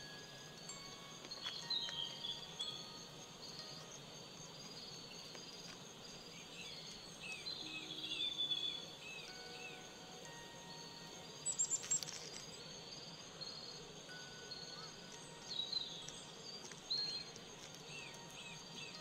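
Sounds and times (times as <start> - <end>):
chime-like tones: 0.0 - 5.1, 7.0 - 12.8
high insect-like trill: 0.0 - 19.0
bird chirps: 1.3 - 3.7, 6.3 - 12.7, 13.4 - 19.0.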